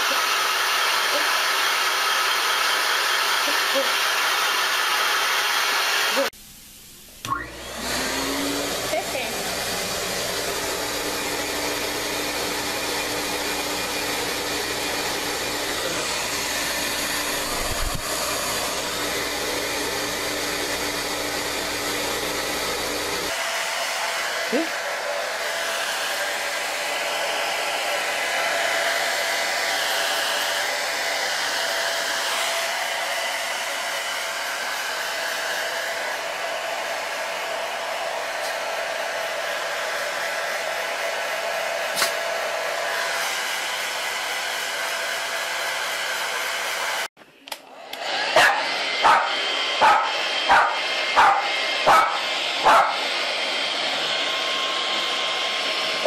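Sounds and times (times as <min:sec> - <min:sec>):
hair dryer blowing: 0:00.0 - 0:06.4, 0:07.2 - 0:56.0.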